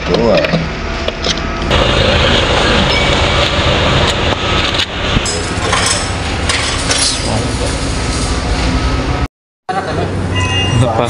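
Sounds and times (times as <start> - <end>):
engine idling: 1.4 - 8.2.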